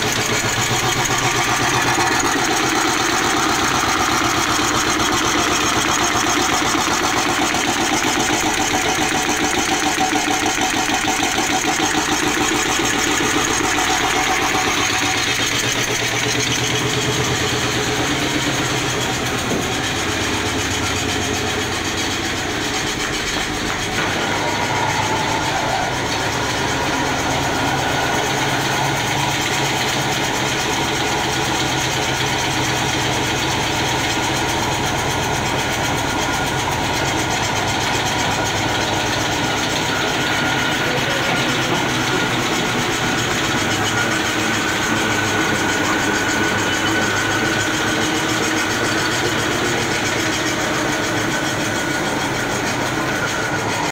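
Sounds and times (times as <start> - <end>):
wood-processing machinery drone: 0.0 - 53.9.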